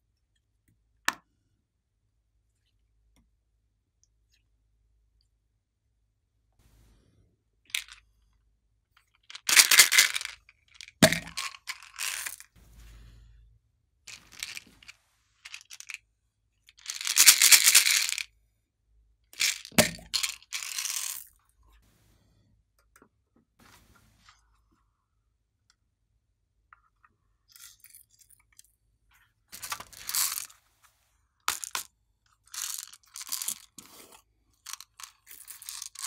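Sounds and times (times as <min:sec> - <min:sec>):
crackling and crinkling bursts: 0:09.0 - 0:13.4, 0:14.1 - 0:16.0, 0:23.6 - 0:24.8, 0:29.1 - 0:31.9.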